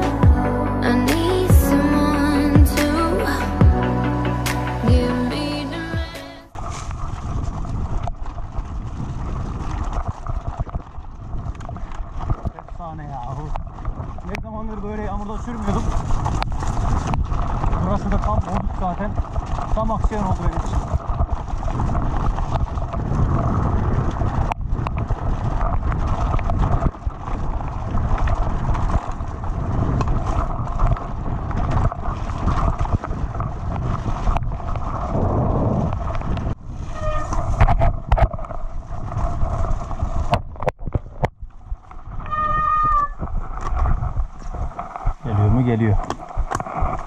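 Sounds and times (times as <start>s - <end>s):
wind rushing over microphone: 0.0s - 47.0s
bike tyres rumbling and rattling: 6.5s - 47.0s
brake pads squealing: 36.8s - 37.5s.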